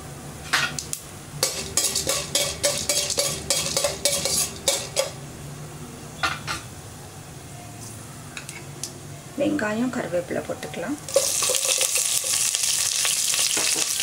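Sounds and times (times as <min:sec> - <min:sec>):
spoon scraping steel pan: 0:01.4 - 0:05.2, 0:11.1 - 0:12.5.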